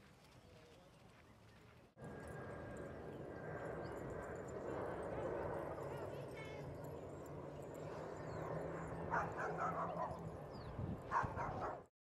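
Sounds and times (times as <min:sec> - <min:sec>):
dog barking: 0:09.0 - 0:10.2, 0:11.1 - 0:11.9.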